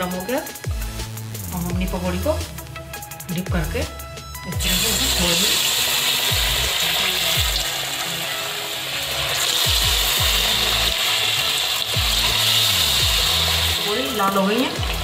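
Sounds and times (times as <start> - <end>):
background music: 0.0 - 15.0
sizzling and crackling of frying oil: 4.6 - 15.0.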